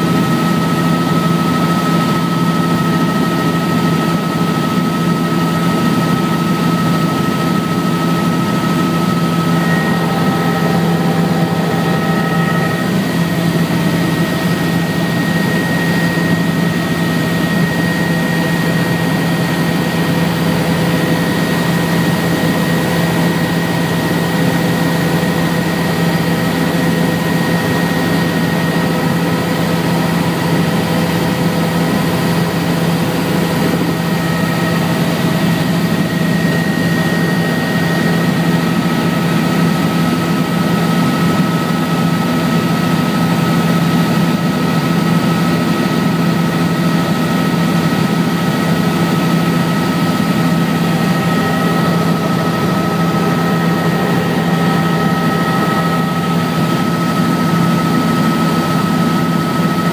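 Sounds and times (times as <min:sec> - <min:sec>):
helicopter engine and rotor drone: 0:00.0 - 0:59.9
high whine: 0:06.0 - 0:29.2, 0:48.0 - 0:57.8.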